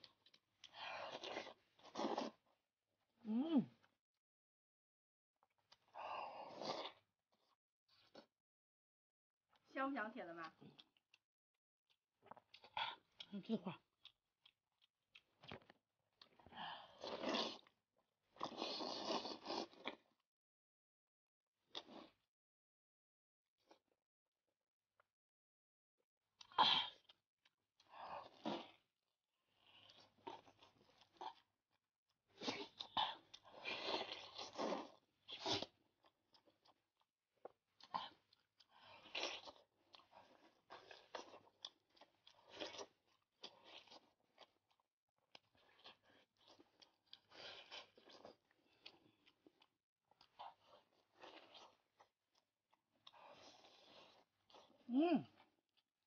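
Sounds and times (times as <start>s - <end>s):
chewing and crunching bone: 0.0s - 2.5s, 10.4s - 20.3s, 26.4s - 56.0s.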